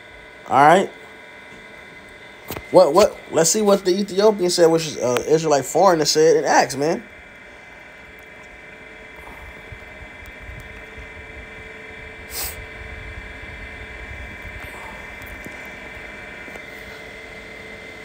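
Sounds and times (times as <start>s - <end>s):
faint high whine: 0.0s - 18.0s
steady background hum: 0.0s - 18.0s
short hiss: 12.3s - 12.6s.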